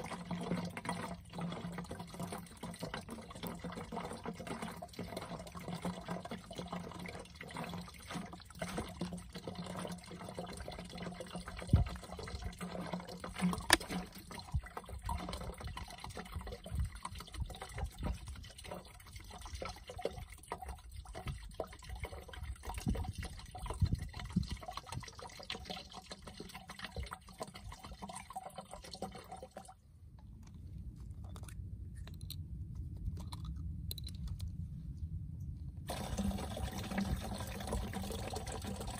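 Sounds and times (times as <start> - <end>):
liquid pouring into plastic jug: 0.0 - 29.9, 35.9 - 38.9.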